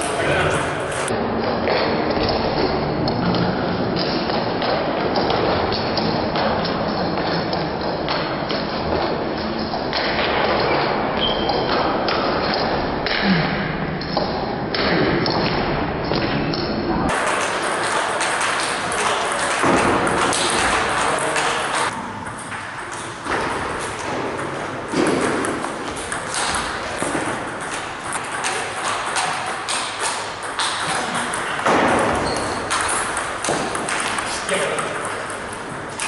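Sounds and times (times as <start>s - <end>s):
hall background noise: 0.0s - 4.0s
table tennis ball clicking: 17.1s - 36.0s.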